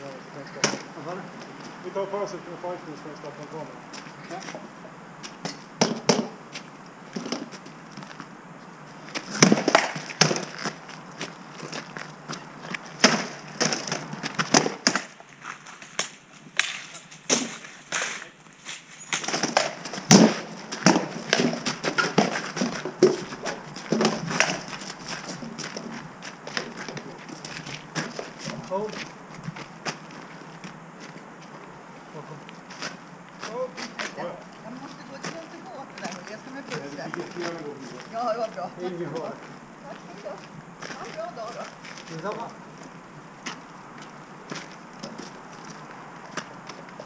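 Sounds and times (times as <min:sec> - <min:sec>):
weapons striking shields: 0:09.3 - 0:10.5, 0:19.2 - 0:23.3.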